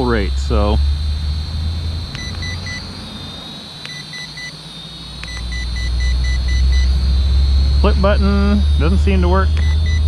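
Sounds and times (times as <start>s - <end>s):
quadcopter motors whining: 0.0s - 10.0s
transmitter short beeps: 2.1s - 10.0s.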